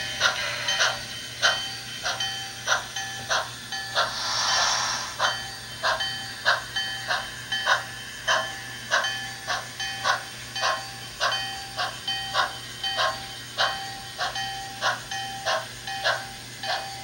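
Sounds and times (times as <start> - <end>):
hiss of steam: 0.0 - 11.2
model steam locomotive chuffing: 0.0 - 17.0.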